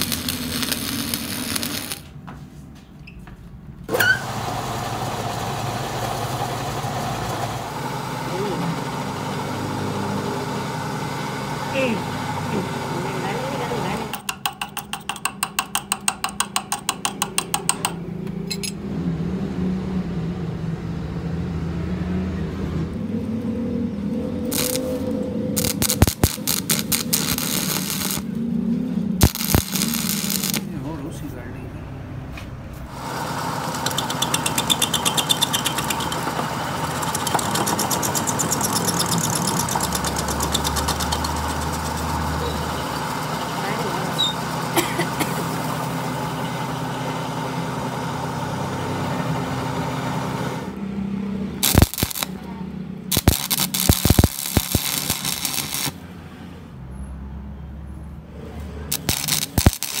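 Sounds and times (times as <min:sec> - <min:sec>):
welding arc crackling: 0:00.0 - 0:02.2, 0:24.4 - 0:28.5, 0:29.2 - 0:30.9, 0:32.9 - 0:44.7, 0:51.6 - 0:52.4, 0:53.1 - 0:56.0, 0:58.9 - 1:00.0
metal lathe humming: 0:03.9 - 0:18.8, 0:32.9 - 0:44.8
rapid regular ticking: 0:25.6 - 0:28.3, 0:29.2 - 0:30.7, 0:33.6 - 0:42.0, 0:51.6 - 0:52.3, 0:53.1 - 0:56.0, 0:58.9 - 1:00.0.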